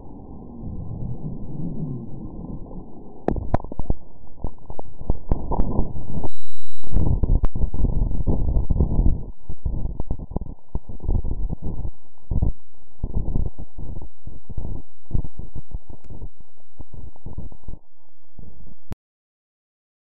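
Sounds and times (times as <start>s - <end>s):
low pulsing roar: 0.0s - 3.4s.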